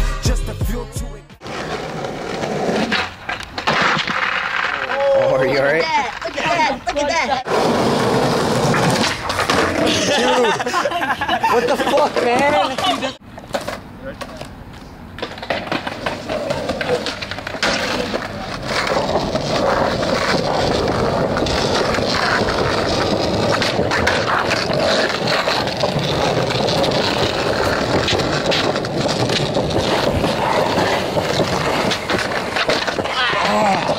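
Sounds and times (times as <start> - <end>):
skateboard wheels rolling on concrete: 1.4 - 33.9.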